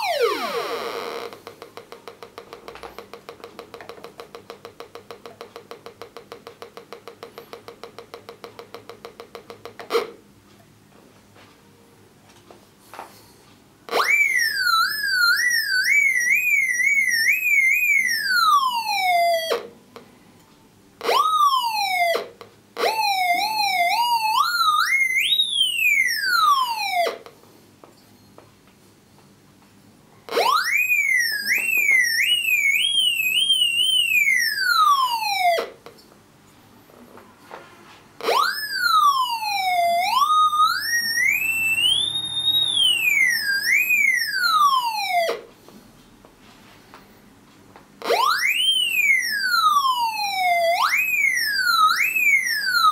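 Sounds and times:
metal detector whistling tone: 0:38.3 - 0:44.5.

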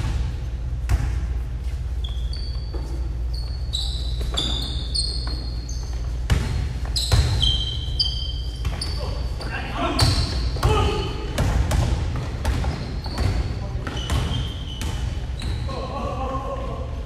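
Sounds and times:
sneakers squeaking: 0:00.0 - 0:16.4.

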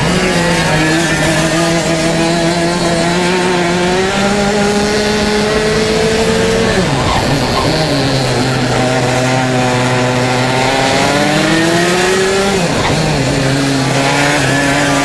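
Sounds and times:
racing kart engine: 0:00.0 - 0:15.0.

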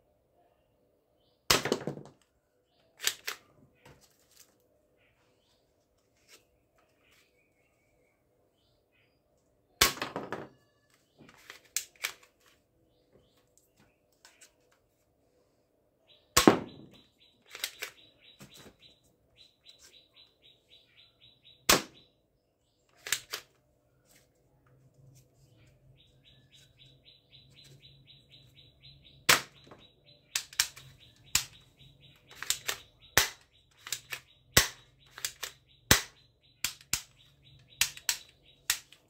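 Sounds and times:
bird chirping: 0:04.8 - 0:09.8, 0:10.5 - 0:12.2, 0:15.3 - 0:39.0
clicks of handling and loading: 0:16.9 - 0:18.0, 0:22.9 - 0:23.6, 0:30.4 - 0:35.6
toy dart pistol firing snaps: 0:32.3 - 0:37.2.

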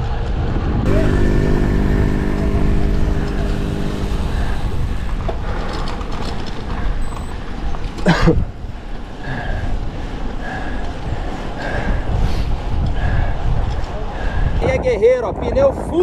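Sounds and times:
road and wind rumble: 0:00.0 - 0:16.0
sharp burst of noise: 0:00.9 - 0:05.9
vehicle engine running: 0:00.9 - 0:07.9.

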